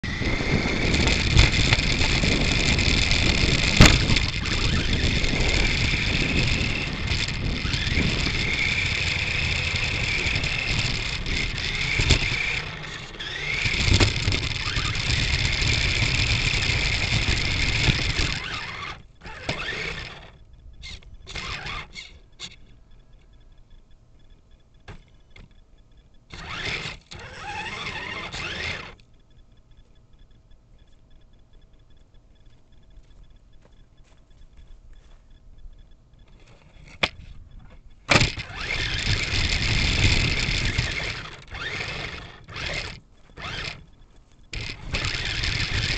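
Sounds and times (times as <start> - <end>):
electric motor whine: 0.0 - 22.7, 26.3 - 29.0, 38.1 - 45.9
wheels rattling on rough ground: 0.0 - 23.4, 26.3 - 29.0, 36.2 - 45.9.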